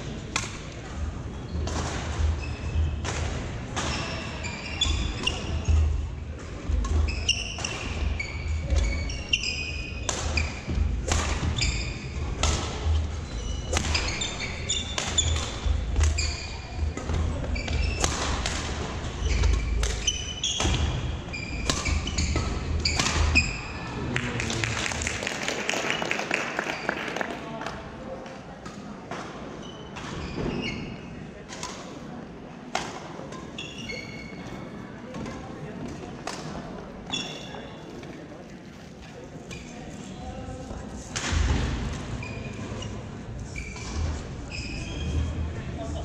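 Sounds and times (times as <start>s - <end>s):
shoes squeaking on wooden floor: 7.0s - 10.8s, 13.2s - 18.1s, 42.2s - 45.4s
rackets smacking shuttlecock: 10.0s - 13.0s, 13.7s - 16.4s, 17.0s - 21.0s, 21.6s - 23.6s.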